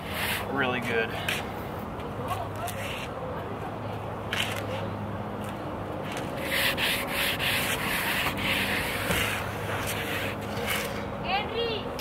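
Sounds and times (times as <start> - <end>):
pad scrubbing rubber tire: 6.1 - 10.9.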